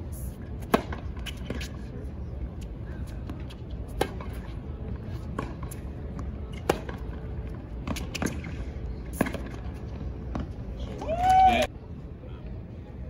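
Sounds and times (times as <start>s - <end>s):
racket striking tennis ball: 0.6s - 1.7s, 3.4s - 4.5s, 5.2s - 7.2s
tennis ball bouncing: 0.6s - 1.8s, 3.2s - 11.1s.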